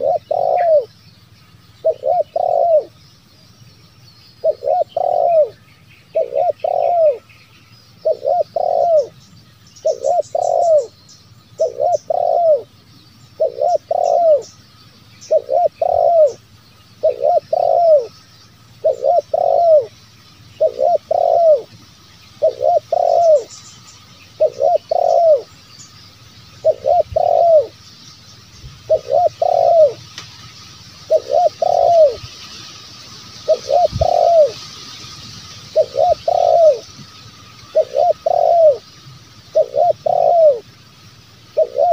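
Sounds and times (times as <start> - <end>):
dove cooing: 0.0 - 1.0, 1.8 - 3.0, 4.4 - 7.3, 8.0 - 9.2, 9.8 - 14.6, 15.2 - 16.4, 17.0 - 18.2, 18.8 - 20.0, 20.6 - 21.8, 22.4 - 23.6, 24.3 - 25.5, 26.5 - 27.8, 28.8 - 30.1, 31.0 - 32.3, 33.4 - 34.6, 35.7 - 37.0, 37.7 - 38.9, 39.5 - 40.8, 41.5 - 41.9.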